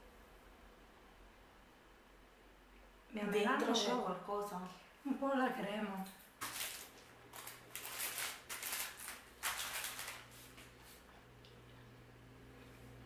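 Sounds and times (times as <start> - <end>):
pastry crackling and crumbling: 6.4 - 10.8.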